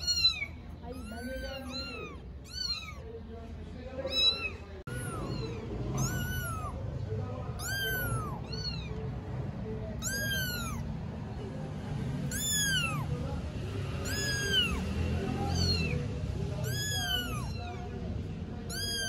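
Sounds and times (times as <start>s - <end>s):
kitten mewing: 0.0s - 3.1s, 4.0s - 9.2s, 9.9s - 10.9s, 12.2s - 13.2s, 13.9s - 18.0s, 18.6s - 19.0s.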